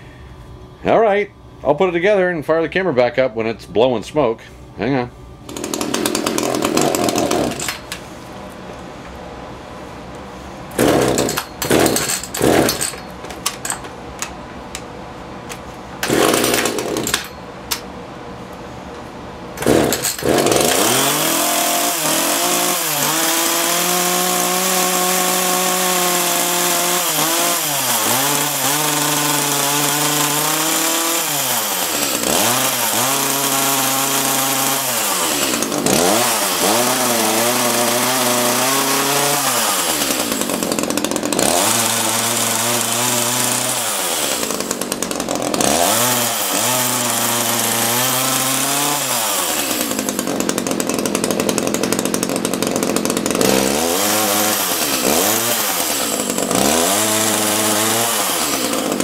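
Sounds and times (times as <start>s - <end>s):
chainsaw engine revving: 5.5s - 7.9s, 10.8s - 13.0s, 16.0s - 17.3s, 19.6s - 59.0s
chainsaw engine pull-starting: 5.5s - 8.0s, 10.8s - 13.9s, 16.0s - 17.4s, 19.6s - 59.0s.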